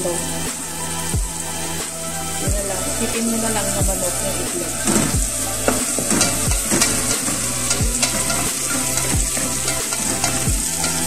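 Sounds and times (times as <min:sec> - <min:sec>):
deep bass beat music: 0:00.0 - 0:11.0
leaves sizzling in a pot: 0:00.0 - 0:11.0
spoon clicking against pot: 0:06.1 - 0:11.0.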